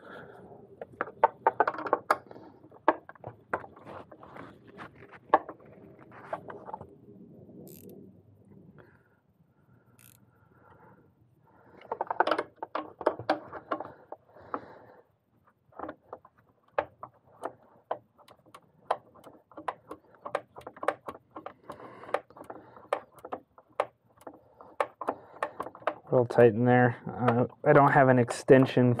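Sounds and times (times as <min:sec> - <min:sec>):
socket ratchet clicking: 0:07.7 - 0:07.9, 0:10.0 - 0:10.2, 0:16.7 - 0:26.1.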